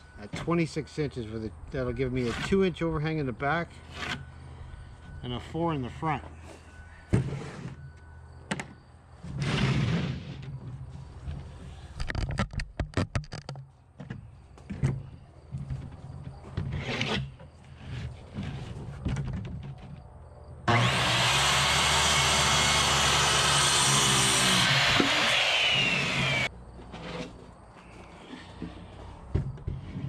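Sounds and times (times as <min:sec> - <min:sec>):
circular saw cutting wood: 0:20.7 - 0:27.3.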